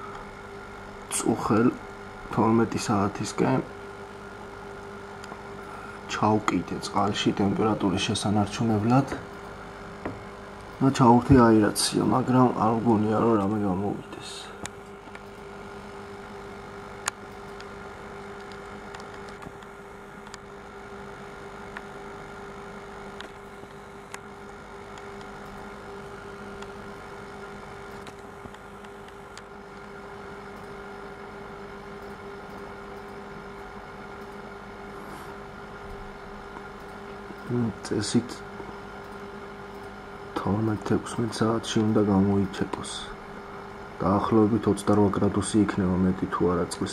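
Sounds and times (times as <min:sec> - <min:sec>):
air pump humming: 0:00.0 - 0:46.9.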